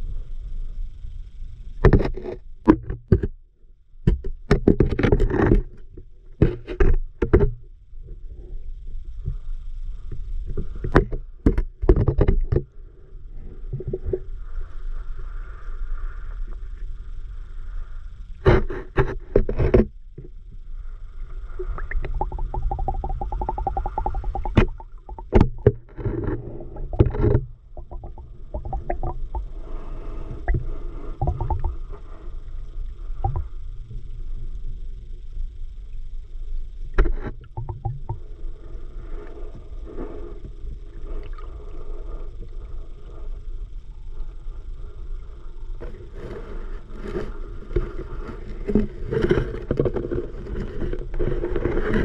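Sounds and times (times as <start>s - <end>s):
underwater rumble of moving water: 0.0s - 52.0s
knocks and scrapes against rocks: 22.2s - 29.2s, 46.2s - 52.0s.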